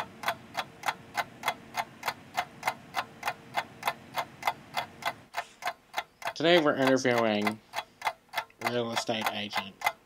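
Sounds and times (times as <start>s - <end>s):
faint steady hum: 0.0s - 10.0s
mechanical ticking: 0.0s - 10.0s.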